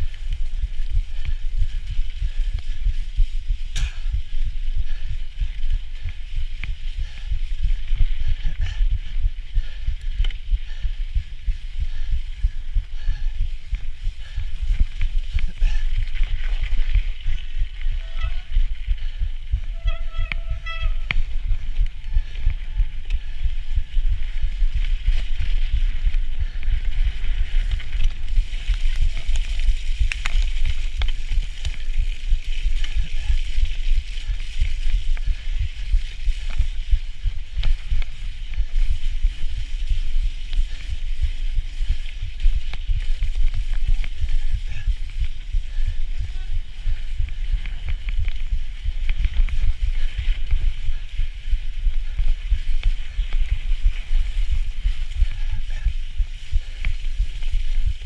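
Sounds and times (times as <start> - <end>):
tyres rumbling on rough snow: 0.0 - 58.0
wind buffeting microphone: 0.0 - 58.0.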